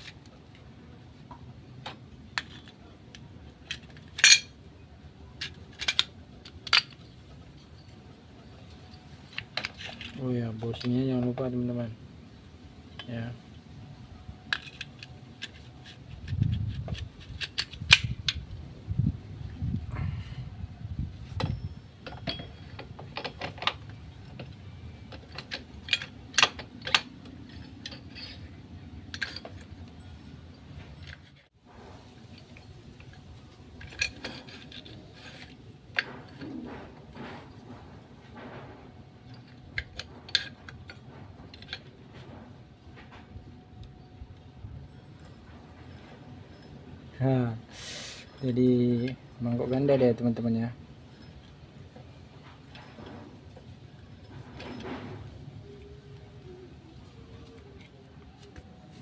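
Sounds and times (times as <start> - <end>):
metal clutch parts clinking: 2.3 - 4.6, 5.3 - 11.5, 14.4 - 18.6, 20.8 - 59.0
clutch plates clinking: 3.6 - 4.6, 21.2 - 31.5.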